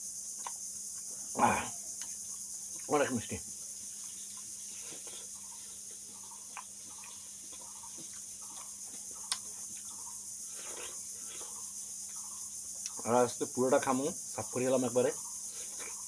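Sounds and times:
crickets chirring: 0:00.0 - 0:16.0
wet chewing of watermelon: 0:04.0 - 0:12.2.

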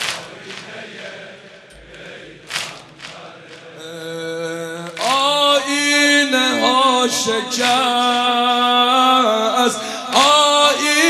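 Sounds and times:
man singing a lament: 0:03.7 - 0:11.0.

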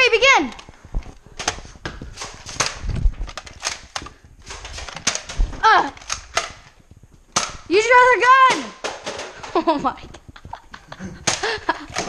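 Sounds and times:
toy blasters clicking and popping: 0:02.2 - 0:09.6.

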